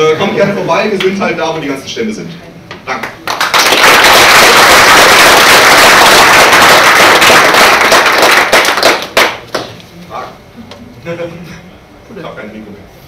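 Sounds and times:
audience applauding: 3.0 - 9.7.

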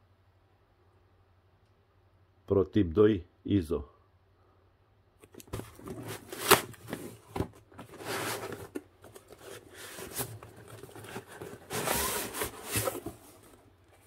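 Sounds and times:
cardboard scraping against cardboard: 5.5 - 14.0.

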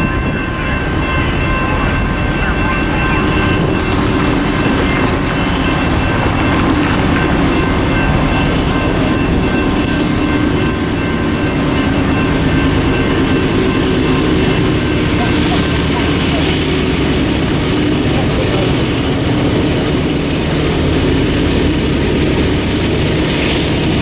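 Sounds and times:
train rumbling on tracks: 0.0 - 24.0.

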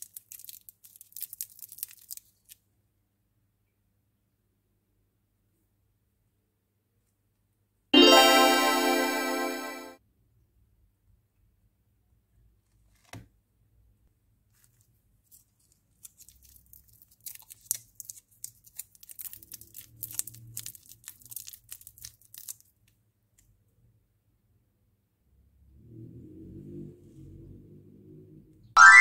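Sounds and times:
foil wrapper crinkling and tearing: 0.0 - 2.6, 15.2 - 22.8.

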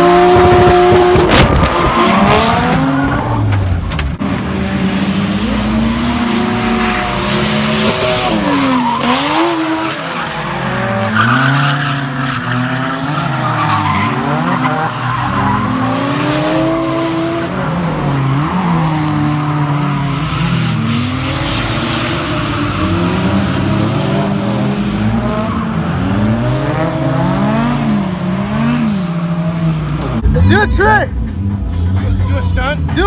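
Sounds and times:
car engines revving: 0.0 - 33.0
tyre squeal: 8.2 - 16.1.

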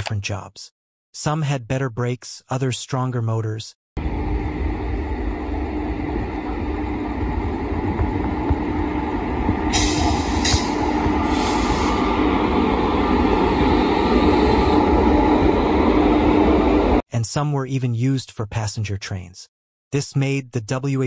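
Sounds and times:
train running rumble and hum: 4.0 - 17.0.

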